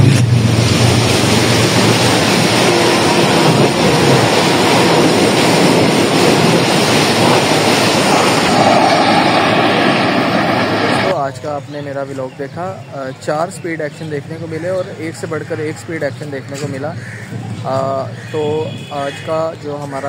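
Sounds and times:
train wheels rumbling on rail: 0.0 - 12.2.

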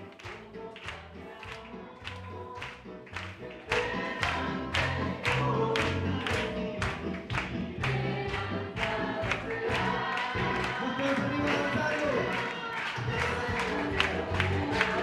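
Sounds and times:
congregation singing: 0.0 - 15.0
hand-clapping: 0.0 - 15.0
band with bass: 2.2 - 12.3, 13.1 - 15.0.

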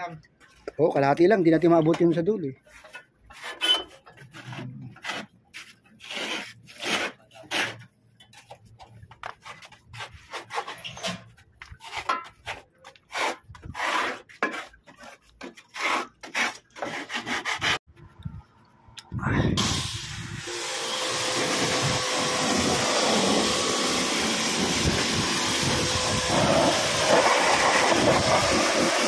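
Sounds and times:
hand scraper rasping on metal pan: 11.8 - 17.8.

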